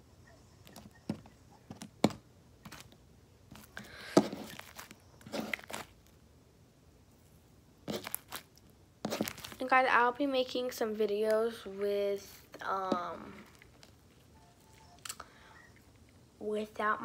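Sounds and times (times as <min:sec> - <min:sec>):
slime squeezed with sticky pops: 0:04.3 - 0:06.0.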